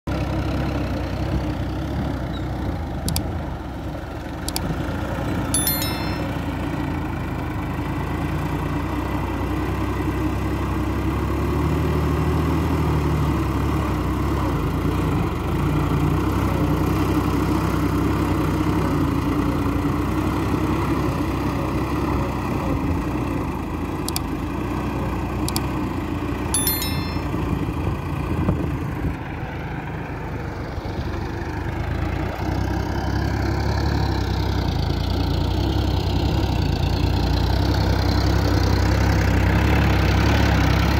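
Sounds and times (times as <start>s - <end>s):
tractor diesel engine under load: 28.3s - 40.9s.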